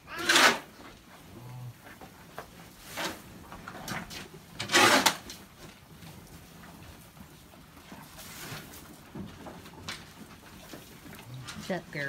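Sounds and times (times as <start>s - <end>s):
shovels scraping barn floor: 0.1s - 1.0s, 2.4s - 5.4s.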